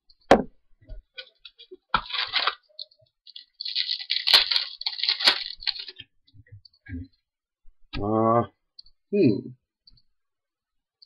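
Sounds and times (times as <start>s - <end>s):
foil wrapper crinkling and tearing: 1.1s - 6.0s.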